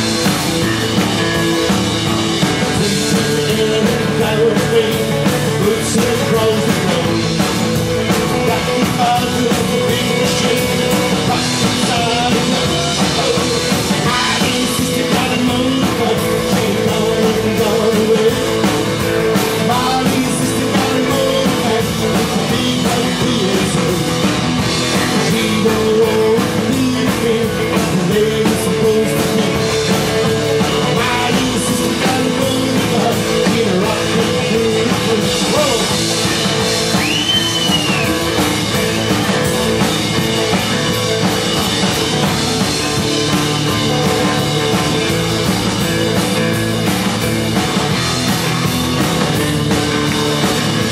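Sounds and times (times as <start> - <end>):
drum kit: 0.0 - 50.9
electric guitars: 0.0 - 50.9
man singing into microphone: 2.6 - 24.4, 25.0 - 36.0.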